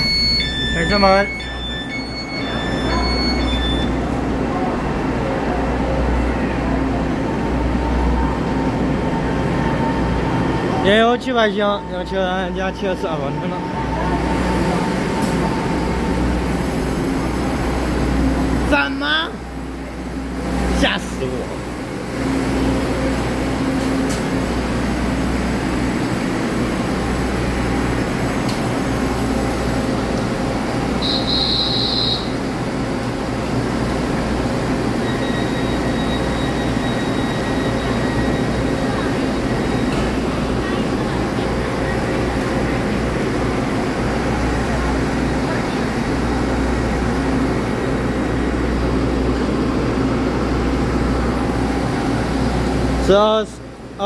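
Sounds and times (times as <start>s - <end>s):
short high beep: 0.0s - 4.0s
train equipment humming: 0.0s - 54.0s.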